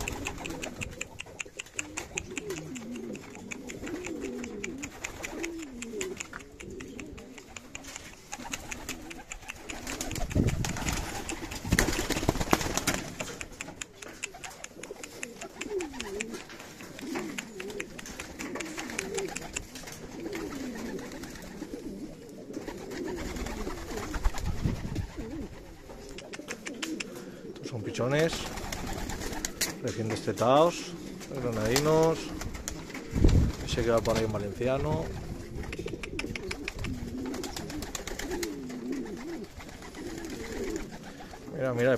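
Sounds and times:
small clicks: 0:00.0 - 0:11.6, 0:12.8 - 0:20.0
pigeons cooing: 0:00.0 - 0:41.9.

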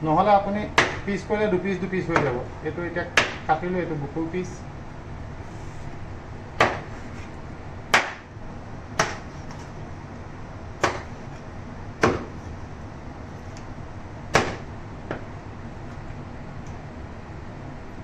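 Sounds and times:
knife chopping on wooden board: 0:00.8 - 0:01.1, 0:03.2 - 0:03.4, 0:06.6 - 0:07.0, 0:07.9 - 0:08.3, 0:09.0 - 0:09.6, 0:10.8 - 0:11.2, 0:12.0 - 0:12.4, 0:14.3 - 0:15.2.

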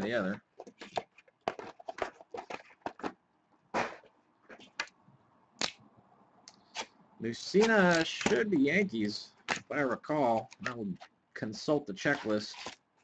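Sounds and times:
cards and plastic packaging rustling: 0:00.1 - 0:03.2, 0:12.0 - 0:12.9.

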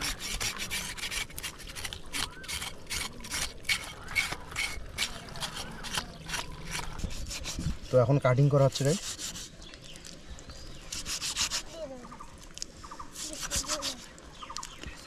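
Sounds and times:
blade scraping skin: 0:00.0 - 0:08.0, 0:13.1 - 0:14.1.

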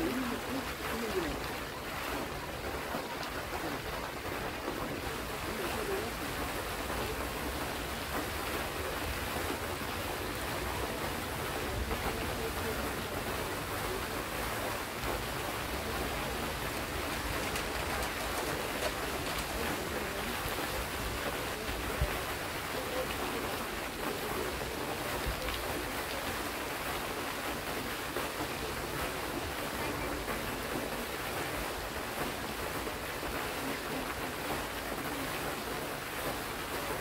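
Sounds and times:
fountain jets splashing: 0:00.0 - 0:37.0.

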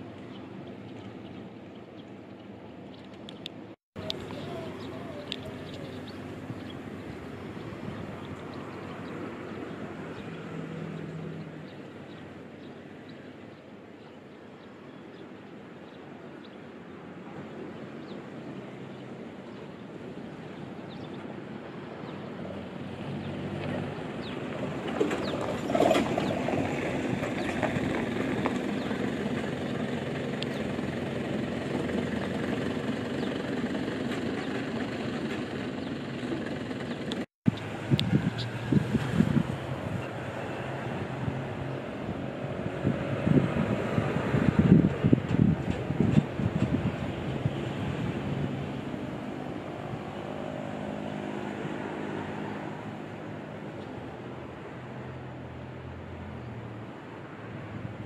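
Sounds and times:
outdoor ambience: 0:00.0 - 0:58.0
motor vehicle engine: 0:04.0 - 0:12.2, 0:22.4 - 0:56.5.

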